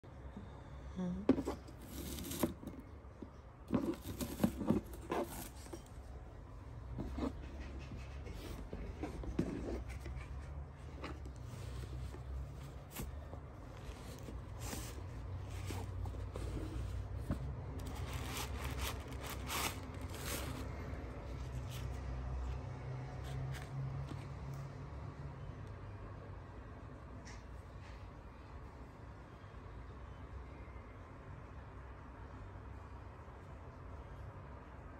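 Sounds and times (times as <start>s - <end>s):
low steady hum: 0.0s - 34.9s
cardboard and fabric rustling: 1.3s - 24.4s.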